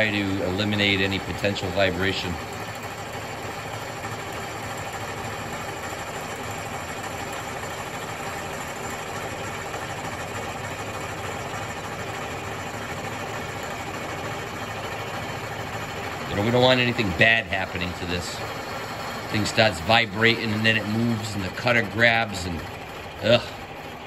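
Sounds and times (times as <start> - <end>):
milling machine cutting metal: 0.0 - 24.0.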